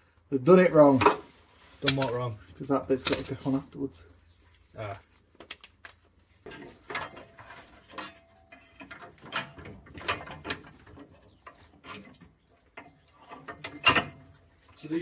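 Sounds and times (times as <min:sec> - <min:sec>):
steel bracket clinking: 0:06.5 - 0:12.2, 0:12.8 - 0:14.9.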